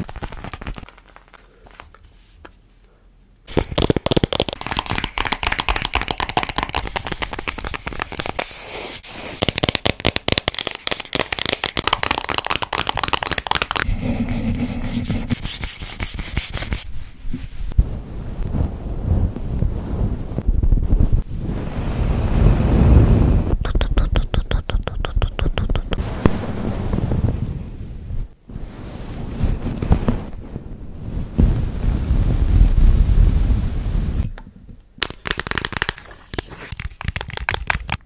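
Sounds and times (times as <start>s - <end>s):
quick crackly taps and scratches: 0.0s - 2.6s, 3.5s - 8.5s, 9.4s - 13.9s, 23.6s - 26.0s, 35.0s - 38.0s
low rubbing sound: 13.8s - 31.6s.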